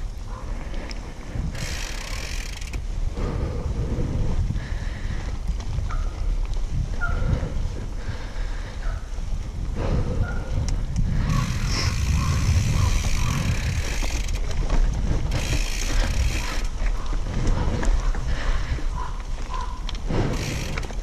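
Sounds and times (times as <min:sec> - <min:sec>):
bike parts rattling and clicking: 0:00.0 - 0:03.7, 0:09.4 - 0:21.0
bike tyres rolling over dirt: 0:00.0 - 0:21.0
wind rumbling on microphone: 0:00.0 - 0:21.0.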